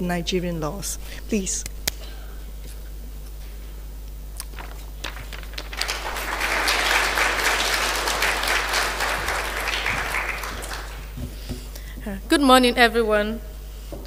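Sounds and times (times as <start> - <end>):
audience applauding: 4.5 - 11.2.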